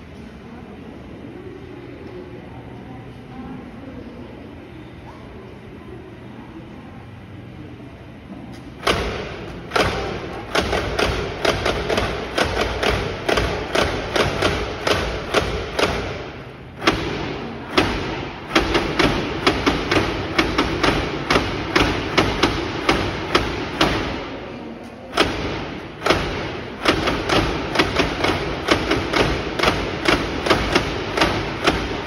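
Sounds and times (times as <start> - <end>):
sharp wooden clacks: 8.8 - 24.3, 25.1 - 32.0.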